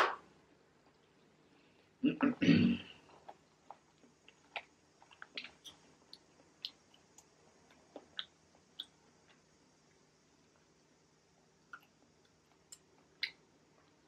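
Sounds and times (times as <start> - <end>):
person chewing food: 3.0 - 9.5.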